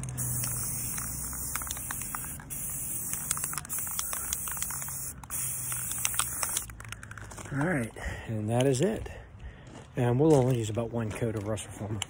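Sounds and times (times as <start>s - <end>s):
aerosol can spraying hiss: 0.0s - 6.7s.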